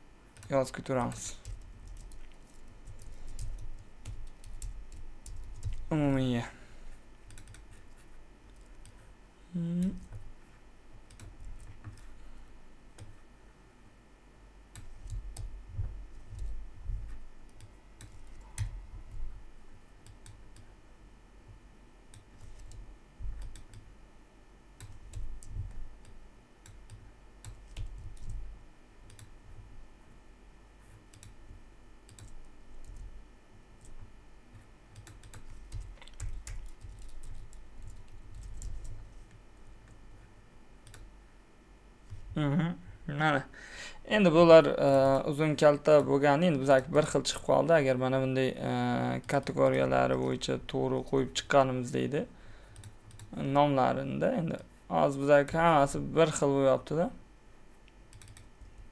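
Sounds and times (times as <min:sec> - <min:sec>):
keyboard typing: 0:00.3 - 0:05.9, 0:07.2 - 0:09.0, 0:11.0 - 0:12.2, 0:14.7 - 0:19.3, 0:22.1 - 0:23.9, 0:24.8 - 0:28.4, 0:29.0 - 0:29.3, 0:31.1 - 0:33.1, 0:33.8 - 0:39.1, 0:40.8 - 0:41.1, 0:52.8 - 0:53.4, 0:58.1 - 0:58.9
person humming hm: 0:09.4 - 0:10.2, 0:42.3 - 0:42.8.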